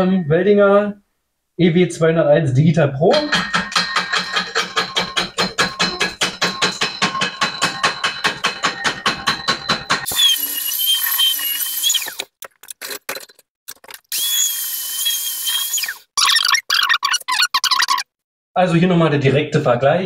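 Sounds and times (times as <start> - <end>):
small power tool whining: 10.1 - 12.2, 14.1 - 16.0.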